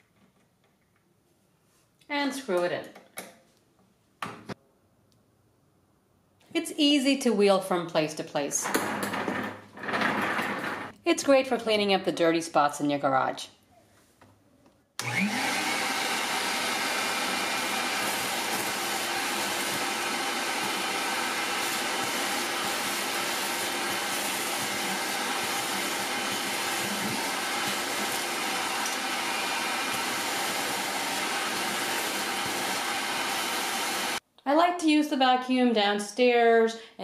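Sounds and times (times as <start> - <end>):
shop vacuum running: 15.0 - 34.2
vacuum motor rising whine: 15.0 - 34.2.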